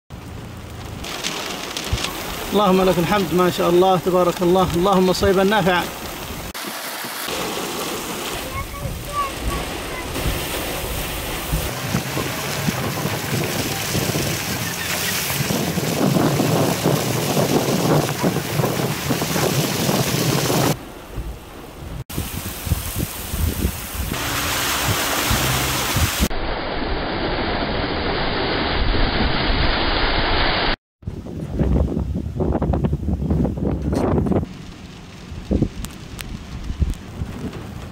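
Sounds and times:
car tyre splashing through water: 0.1 - 26.3
floodwater running: 0.1 - 26.3
heavy rain pouring: 0.1 - 26.3, 33.5 - 37.9
wind buffeting microphone: 8.3 - 26.3, 31.0 - 37.9.

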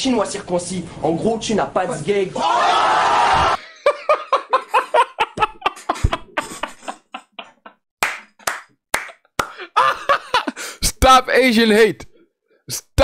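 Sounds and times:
man laughing hard: 3.6 - 7.8, 9.4 - 10.8
breathy gasps: 9.4 - 9.8, 10.6 - 10.8.

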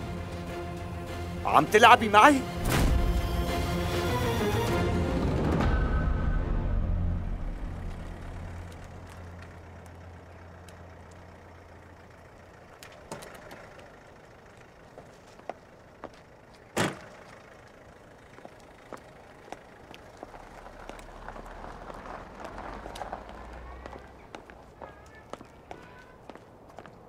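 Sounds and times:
vehicle engine running low: 0.0 - 27.0.

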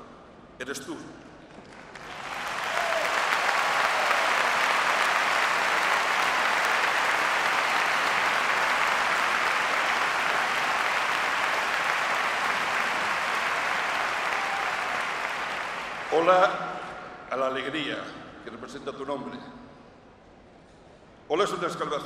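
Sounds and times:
large crowd applauding: 1.6 - 16.6.

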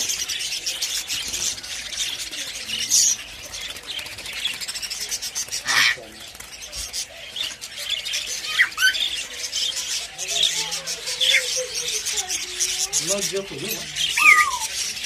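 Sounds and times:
budgerigars chattering: 0.0 - 15.0
loud bird squawks: 5.6 - 6.1, 13.9 - 15.0.

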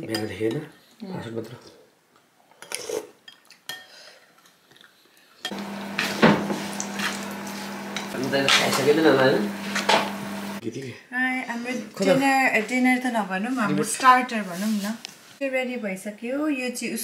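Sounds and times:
oil sizzling in a pan: 5.5 - 10.6.

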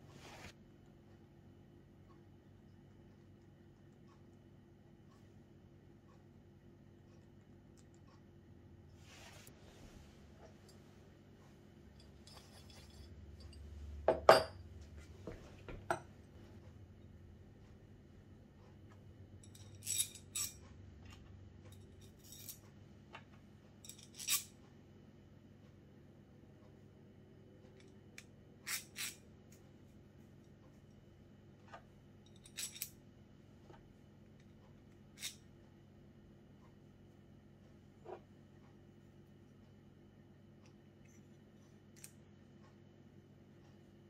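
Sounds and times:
steel parts clinking on wood: 12.0 - 14.6, 19.4 - 20.7, 21.8 - 22.7, 23.8 - 24.6, 32.3 - 33.0.

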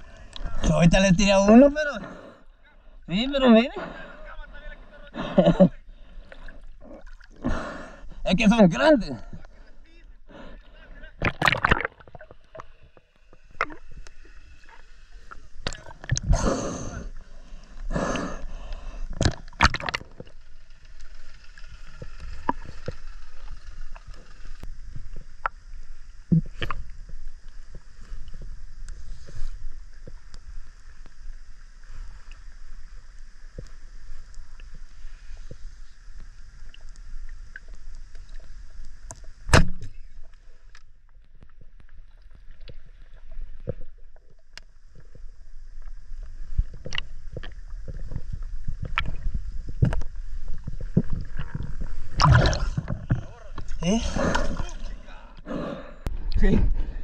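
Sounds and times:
muffled underwater rumble: 0.0 - 57.0
rushes of moving water: 5.2 - 40.8, 41.4 - 55.4
small underwater clicks: 11.2 - 16.3, 18.6 - 29.0, 35.4 - 54.6.

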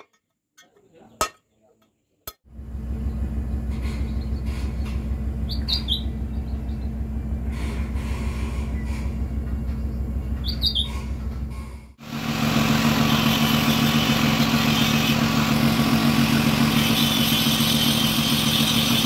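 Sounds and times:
low mechanical hum: 2.5 - 19.0
bird chirping: 3.0 - 7.0, 9.7 - 11.1.

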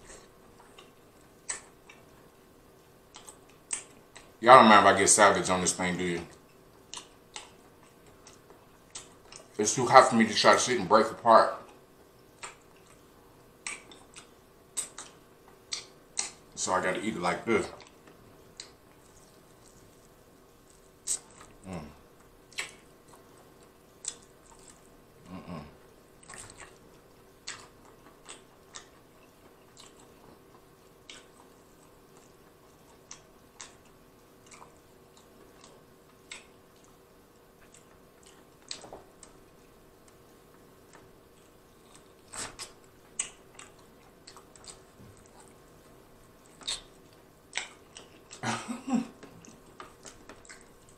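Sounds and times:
wet chewing smacks: 3.1 - 4.4, 6.3 - 9.6, 11.6 - 16.5, 17.7 - 21.6, 22.2 - 25.0, 26.2 - 48.5, 49.1 - 50.9.

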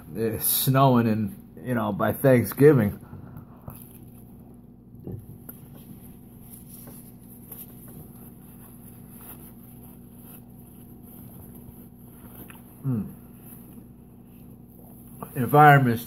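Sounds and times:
steady low hum: 0.0 - 16.0
paper napkin rustling: 5.2 - 16.0.

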